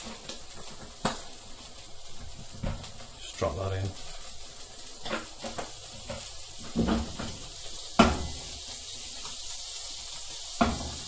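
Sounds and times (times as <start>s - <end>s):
fish and butter sizzling in pan: 0.0s - 11.0s
pan knocking on hob grate: 5.0s - 7.4s, 8.0s - 8.4s, 10.6s - 11.0s.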